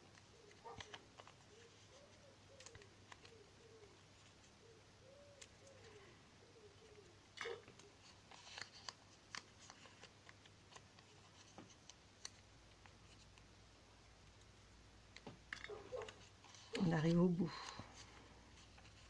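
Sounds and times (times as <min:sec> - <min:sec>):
paper rustling and crinkling: 0:00.0 - 0:04.6, 0:07.4 - 0:13.4, 0:15.2 - 0:19.0.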